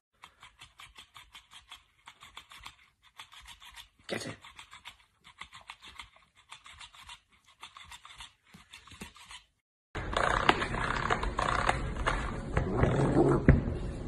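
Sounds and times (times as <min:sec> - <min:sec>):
dog gnawing and licking toy: 0:00.2 - 0:09.5.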